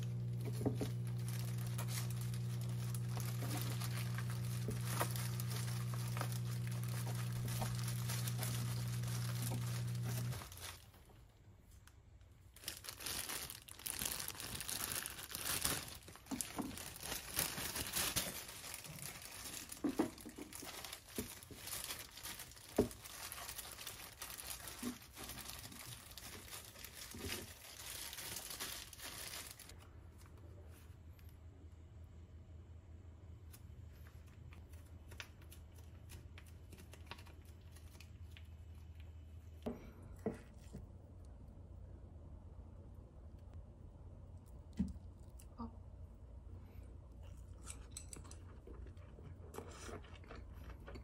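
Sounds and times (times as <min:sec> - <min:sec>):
steady low hum: 0:00.0 - 0:11.7
plastic gloves crinkling: 0:00.0 - 0:30.8, 0:33.5 - 0:39.4.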